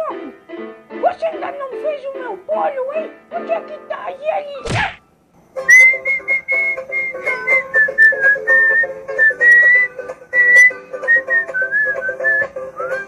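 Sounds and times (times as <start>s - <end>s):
whistled tune: 5.6s - 13.0s.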